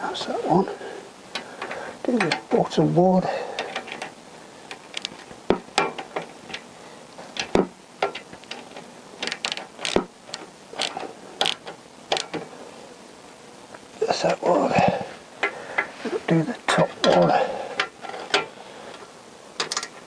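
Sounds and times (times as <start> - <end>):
socket ratchet clicking: 4.7 - 5.2, 9.2 - 12.4.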